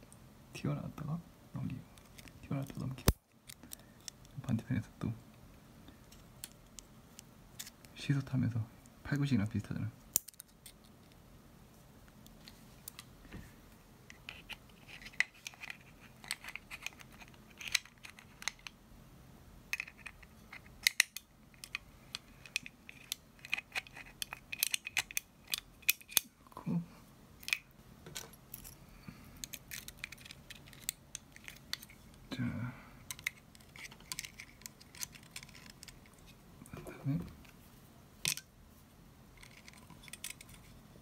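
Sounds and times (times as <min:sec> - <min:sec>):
metallic clicks of small steel parts: 0:10.1 - 0:10.8.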